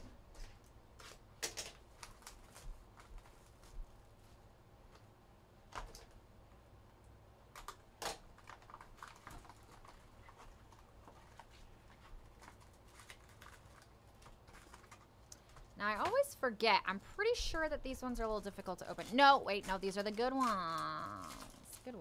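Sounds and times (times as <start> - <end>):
cardboard and wrapping rustling: 0.0 - 5.0, 8.3 - 16.5, 17.2 - 22.0
wrapping ripping: 1.0 - 4.3, 7.6 - 16.1, 18.5 - 22.0.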